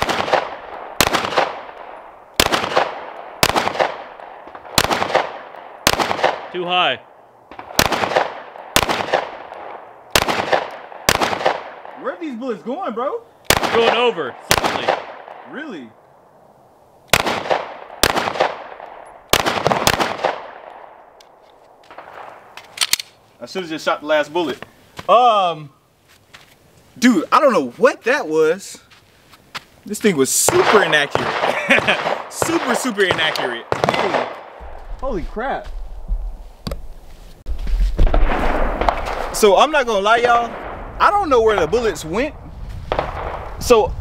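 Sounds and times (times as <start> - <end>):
pistol shots with echo: 0.0 - 6.6, 7.5 - 12.0, 13.5 - 15.5, 17.1 - 21.0, 30.5 - 34.7, 42.9 - 43.5.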